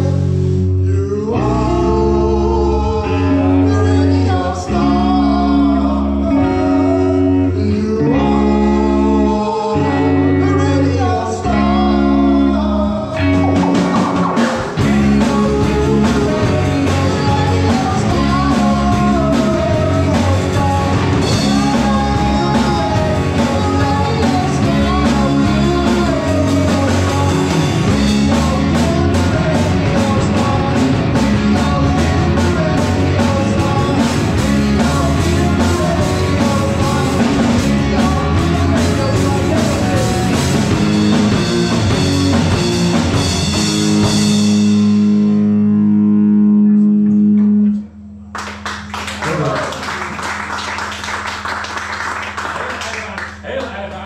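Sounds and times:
person singing: 0.0s - 40.7s
rock band playing: 0.0s - 53.9s
drum kit: 13.1s - 45.5s.

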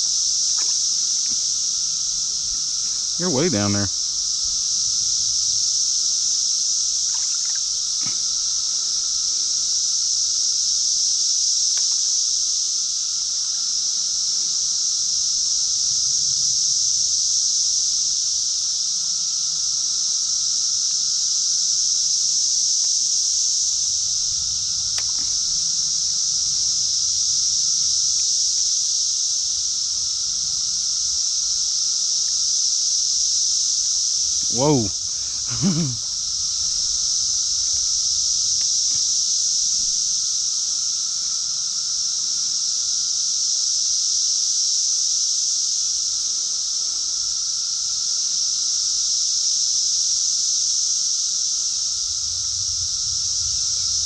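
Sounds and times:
insects droning: 0.0s - 54.0s
faint ticks: 0.5s - 3.2s, 6.3s - 9.6s, 11.6s - 12.2s, 24.4s - 26.8s, 34.1s - 40.2s.

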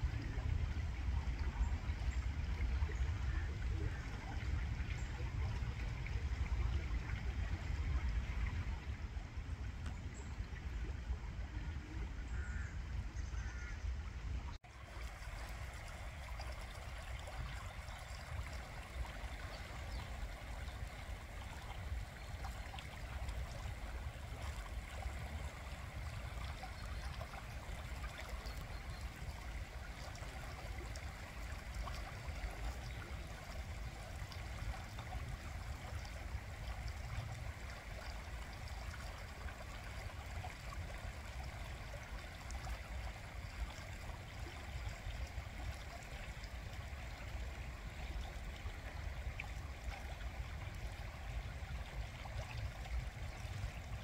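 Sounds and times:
river water running over stones: 14.6s - 54.0s.

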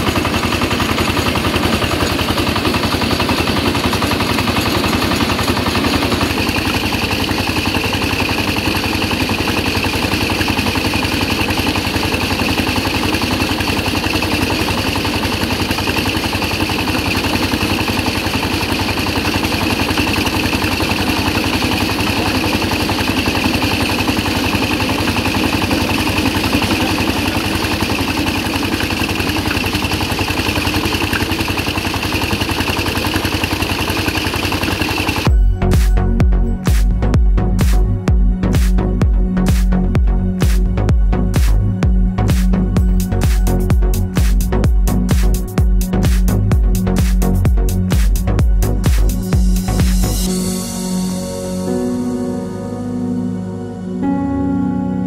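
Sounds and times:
rattling clatter of grains: 0.0s - 35.3s
small motor running: 0.0s - 50.6s.

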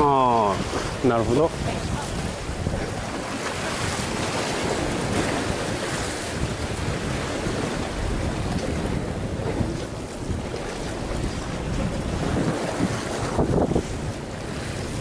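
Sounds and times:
sea waves washing against concrete: 0.0s - 15.0s
wind buffeting microphone: 0.0s - 15.0s.

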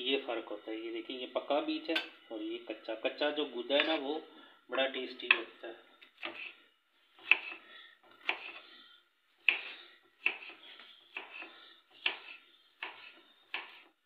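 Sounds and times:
knife chopping vegetable: 5.3s - 6.6s, 7.2s - 8.7s, 9.4s - 14.0s.

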